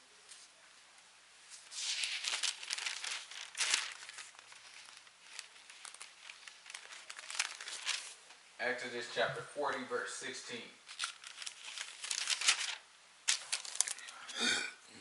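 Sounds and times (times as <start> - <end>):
thin pages rustling: 1.5 - 8.4, 10.8 - 14.3.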